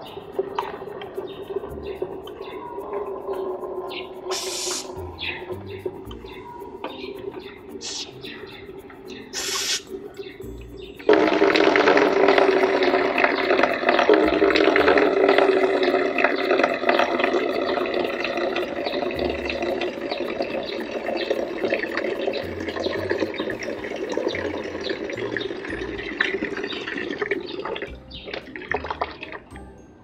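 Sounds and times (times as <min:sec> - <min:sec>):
water pouring into a container: 0:11.0 - 0:29.5.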